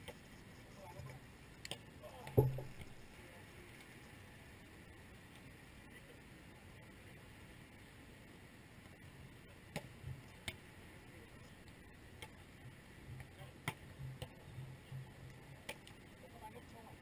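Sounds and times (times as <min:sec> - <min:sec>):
faint steady hiss: 0:00.0 - 0:17.0
volleyball struck by hands: 0:02.4 - 0:03.0, 0:13.1 - 0:15.8.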